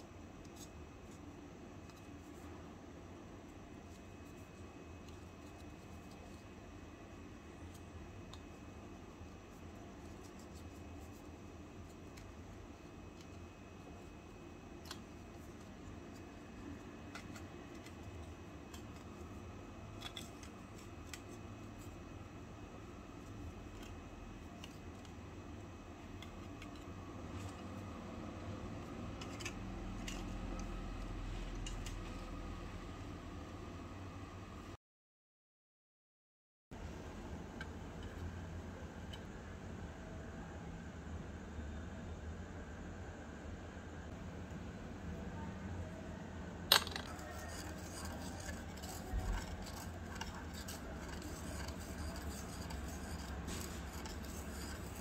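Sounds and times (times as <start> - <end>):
low steady background hum: 0.0 - 34.8, 36.7 - 55.0
metal spoon stirring in pan: 47.1 - 55.0.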